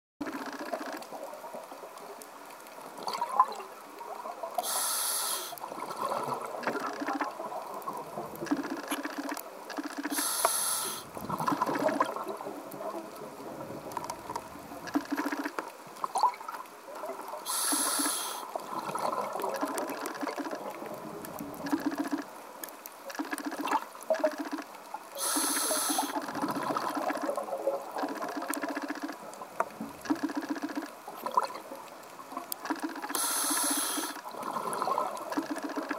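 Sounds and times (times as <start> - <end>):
faint clicks: 0.2 - 3.0, 6.5 - 34.3, 35.1 - 35.9
regulator inhalation hiss: 4.6 - 5.6, 10.1 - 11.1, 17.5 - 18.5, 25.2 - 26.2, 33.1 - 34.2
bubbling exhalations: 33.2 - 35.6.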